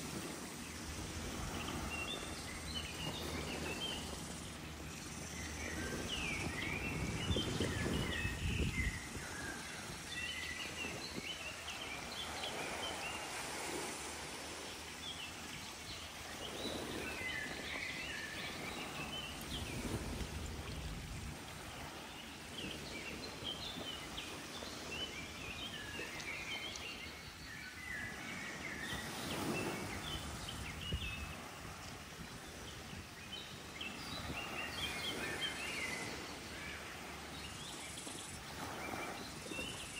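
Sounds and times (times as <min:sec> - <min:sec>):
low rushing wash: 0:00.0 - 0:24.9.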